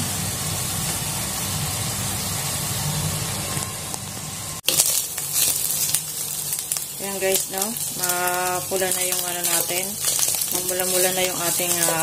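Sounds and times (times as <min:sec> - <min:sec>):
ground pork sizzling in a pan: 0:04.6 - 0:12.0.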